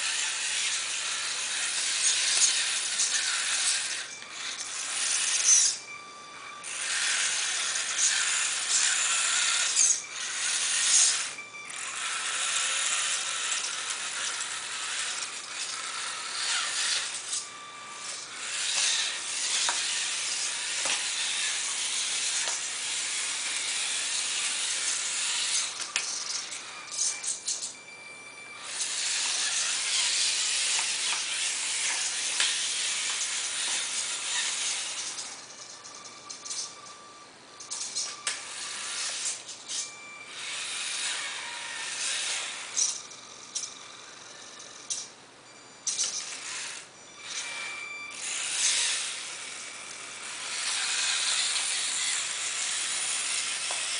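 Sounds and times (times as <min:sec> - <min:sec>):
toy truck motor whirring: 0:00.0 - 0:53.9.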